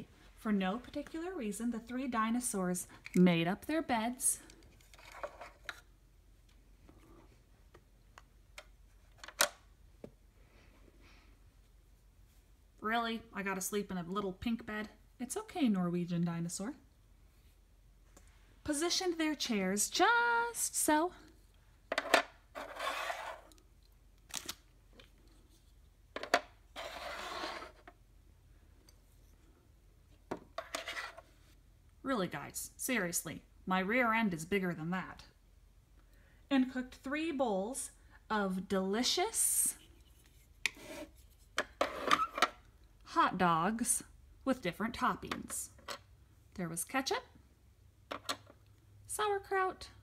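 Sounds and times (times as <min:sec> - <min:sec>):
plastic piece scraping slide: 0:22.6 - 0:23.6, 0:26.7 - 0:27.9.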